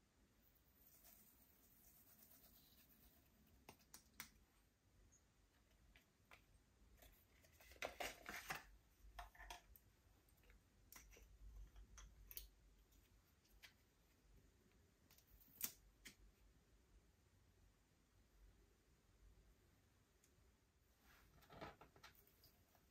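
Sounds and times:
small clicks and taps: 3.6s - 4.4s.

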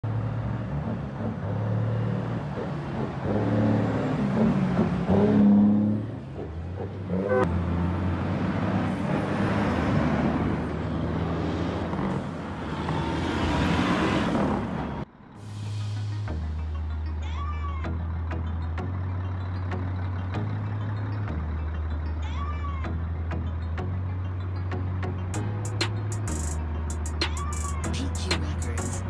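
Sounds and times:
diesel truck engines revving: 0.0s - 29.0s.

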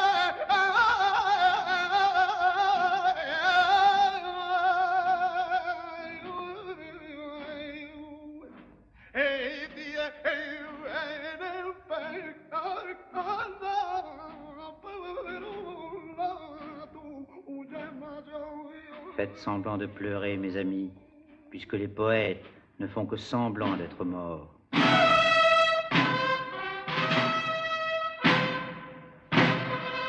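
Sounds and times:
person singing with vibrato: 0.0s - 21.8s.

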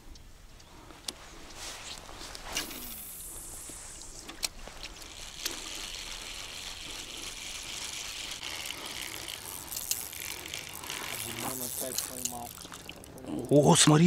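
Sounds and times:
fishing reel gears whirring: 2.6s - 13.2s.

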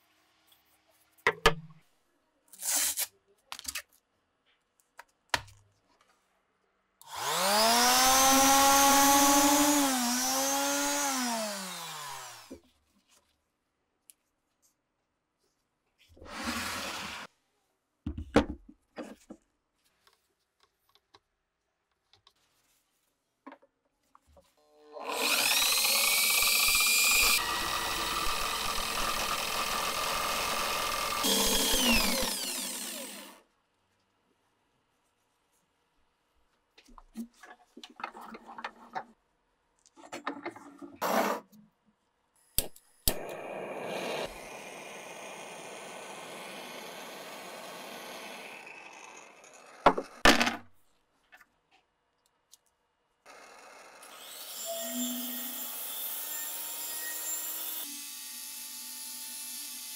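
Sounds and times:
angle grinder grinding steel: 25.0s - 33.4s, 54.1s - 58.0s
blowtorch flame hissing: 43.2s - 47.7s.

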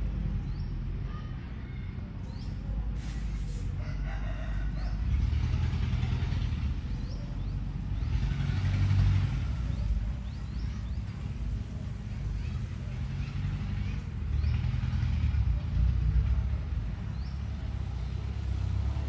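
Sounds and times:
low vehicle engine rumble: 0.0s - 19.0s
small birds chirping: 1.7s - 2.8s, 6.7s - 8.2s, 9.4s - 14.7s
rooster crowing: 3.8s - 5.3s.

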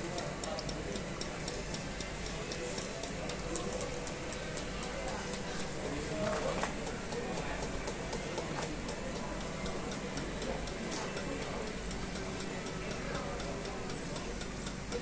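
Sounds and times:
fast regular ticking: 0.0s - 15.0s.

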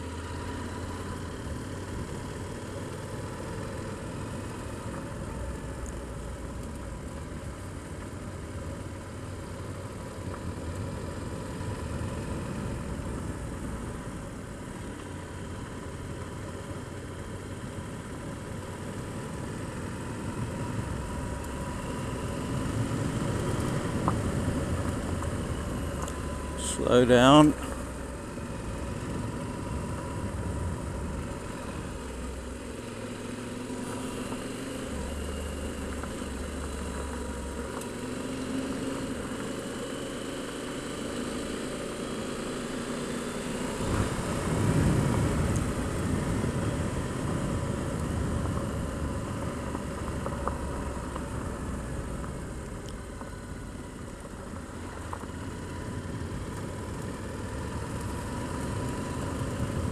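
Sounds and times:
motorcycle engine running: 0.0s - 59.9s
tyre and wind noise: 43.8s - 52.3s.

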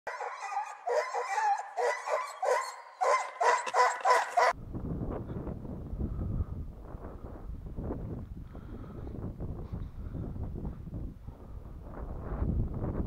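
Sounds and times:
dogs barking and baying: 0.1s - 4.6s
wind buffeting microphone: 4.5s - 13.0s.

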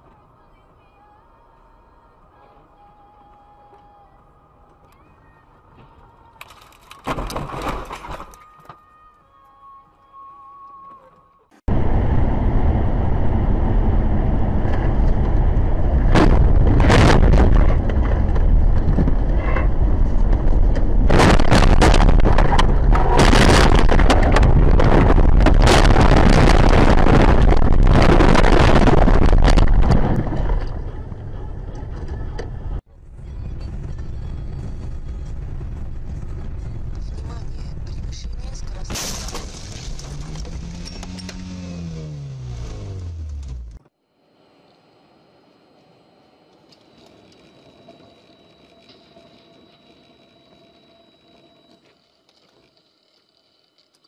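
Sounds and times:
car crashing and tumbling: 6.5s - 8.7s, 14.4s - 30.9s, 38.9s - 43.8s
road and wind noise: 11.6s - 50.9s.

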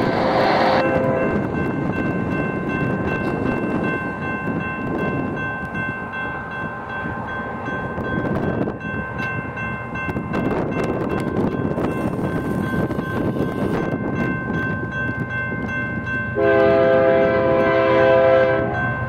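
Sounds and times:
freight train rumbling: 0.0s - 19.0s
locomotive horn chord: 0.5s - 1.4s, 16.4s - 19.0s.

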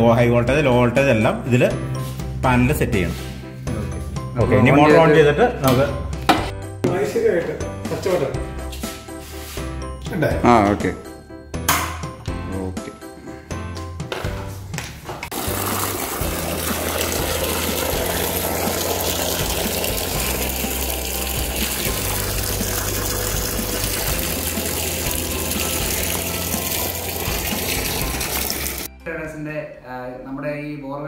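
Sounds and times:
water gushing from a pipe: 15.3s - 28.9s.

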